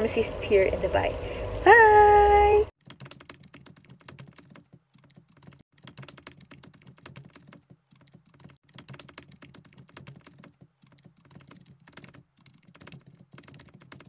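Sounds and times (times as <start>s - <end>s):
keyboard typing: 2.8s - 14.0s.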